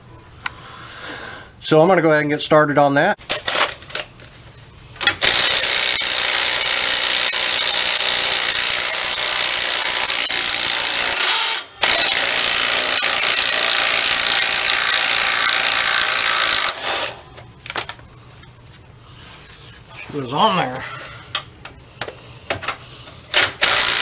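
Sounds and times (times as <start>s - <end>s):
impact wrench hammering: 5.0s - 17.3s, 23.3s - 24.0s.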